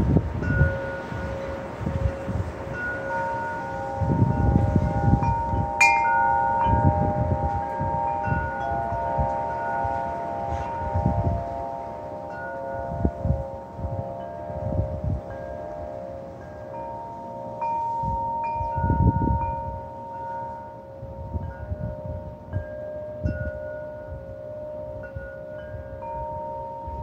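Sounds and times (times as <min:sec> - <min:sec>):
low rumbling wind gusts: 0:00.0 - 0:27.0
wind chimes ringing: 0:00.0 - 0:27.0.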